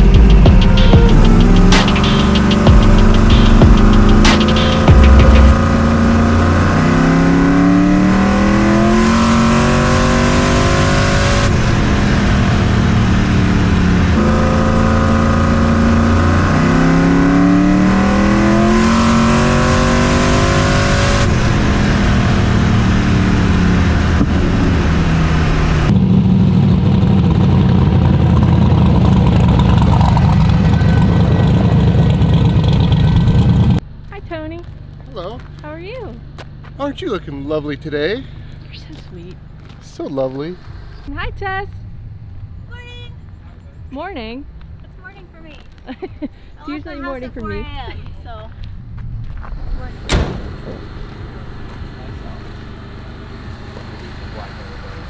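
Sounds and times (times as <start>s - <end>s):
truck engine accelerating: 0.0s - 55.0s.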